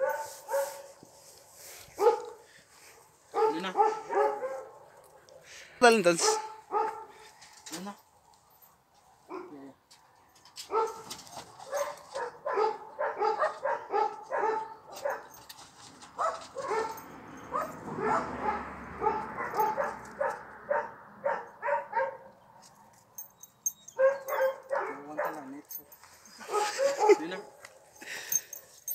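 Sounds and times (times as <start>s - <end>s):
dog barking: 0.0s - 0.8s, 2.0s - 2.4s, 3.3s - 5.4s, 6.2s - 7.2s, 9.3s - 9.6s, 10.7s - 11.1s, 11.7s - 15.4s, 16.2s - 22.4s, 24.0s - 25.5s, 26.4s - 27.5s.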